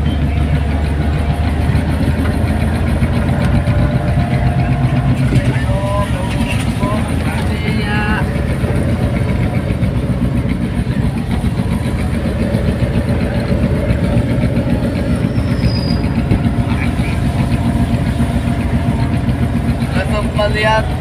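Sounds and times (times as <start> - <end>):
car engine and tyre noise: 0.0 - 21.0.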